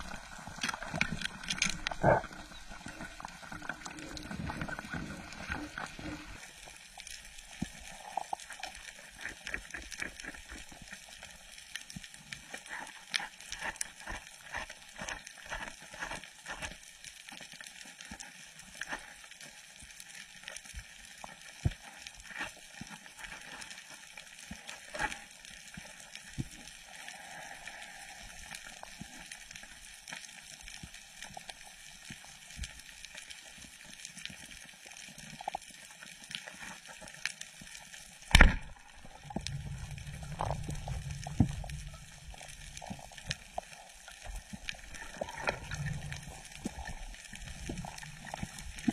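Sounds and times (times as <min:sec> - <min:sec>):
water sloshing and gurgling: 0:00.0 - 0:16.8, 0:38.1 - 0:48.9.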